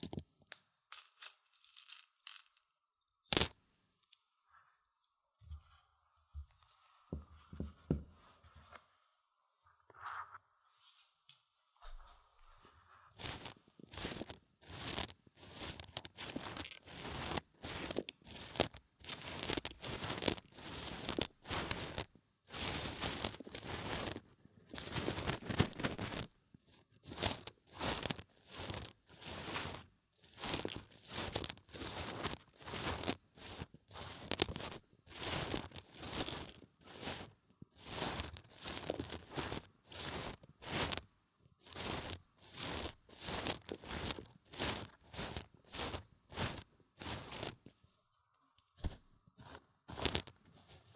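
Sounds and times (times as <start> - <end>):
dry beans rustling and crunching: 0.9 - 2.6, 3.3 - 3.6, 13.2 - 26.3, 27.0 - 47.7, 49.4 - 50.7.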